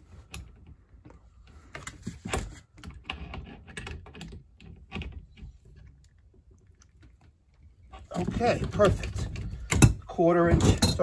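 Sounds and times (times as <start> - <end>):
wrenches clicking and knocking: 2.2 - 5.8, 7.9 - 11.0.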